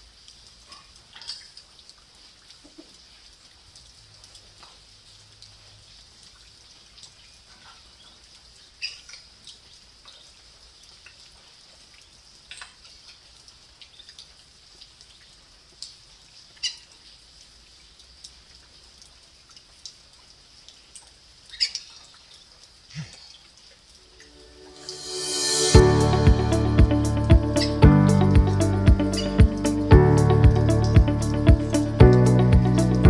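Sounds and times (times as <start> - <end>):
light rain hiss: 0.0 - 33.0.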